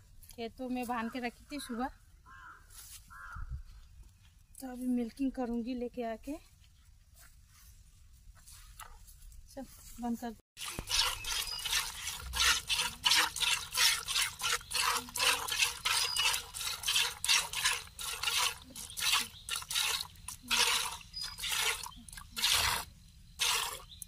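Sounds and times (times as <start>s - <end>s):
milk squirting into bucket: 10.6s - 24.0s.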